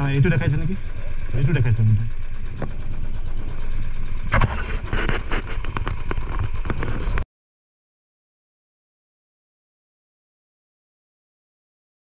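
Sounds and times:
motorcycle engine running: 0:00.0 - 0:07.2
sharp knocks and rattles: 0:02.4 - 0:07.2.

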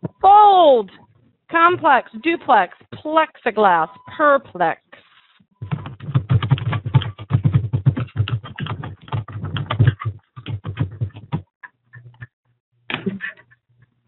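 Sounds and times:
computer keyboard typing: 0:05.6 - 0:11.1.

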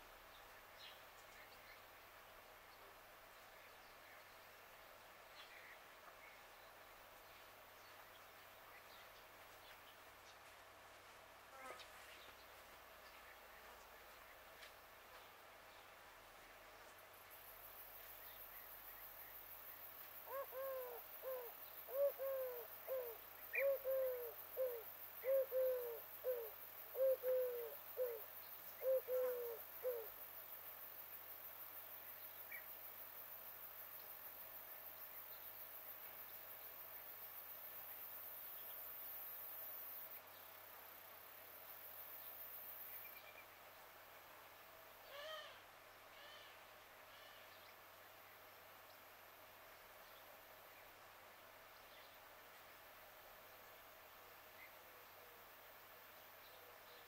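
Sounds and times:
quiet outdoor hiss: 0:00.0 - 0:57.0
faint animal calls: 0:20.2 - 0:30.2, 0:45.0 - 0:47.6
dove cooing: 0:20.3 - 0:28.2, 0:28.8 - 0:30.1.

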